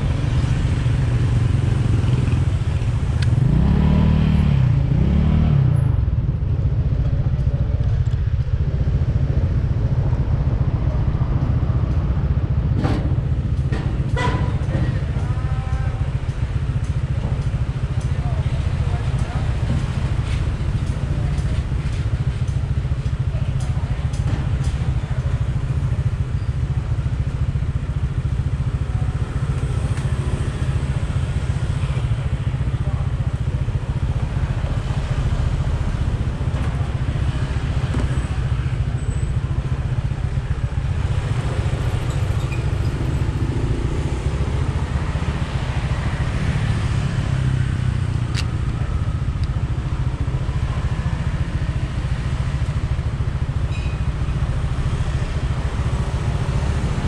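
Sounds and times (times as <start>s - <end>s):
scooter engine idling: 14.1s - 57.0s.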